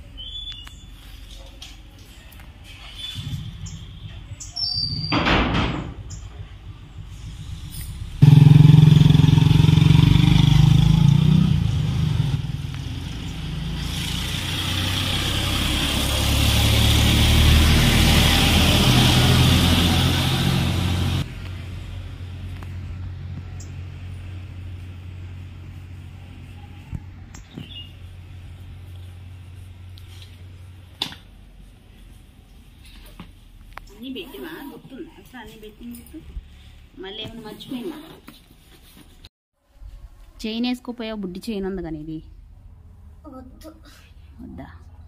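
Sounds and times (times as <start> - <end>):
vehicle engine running: 6.2 - 27.4.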